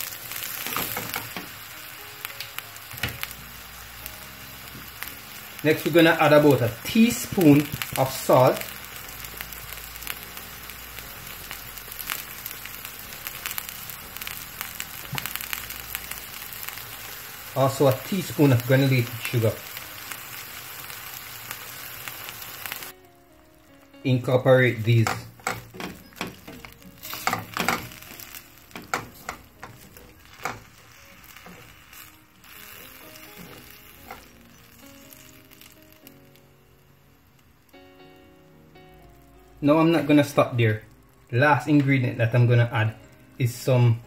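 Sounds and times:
crackling pops: 0.0 - 3.4, 4.1 - 22.9, 24.8 - 36.6
vegetables sizzling in oil: 0.0 - 44.0.

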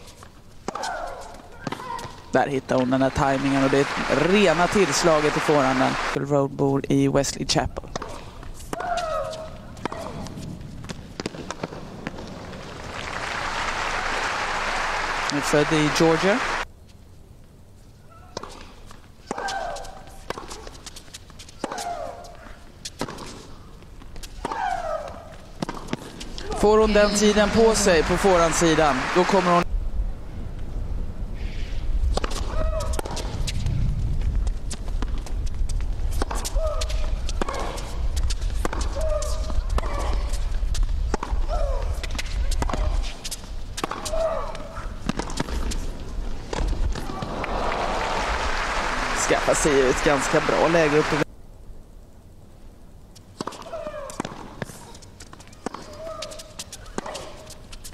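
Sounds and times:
racquets striking tennis ball: 0.0 - 6.2, 7.7 - 13.1, 18.3 - 29.6, 32.1 - 33.6, 34.4 - 47.6, 53.2 - 57.9
ball bouncing on hard court: 0.7 - 2.2, 7.9 - 12.3, 24.2 - 27.7, 36.1 - 43.1, 43.8 - 45.8.

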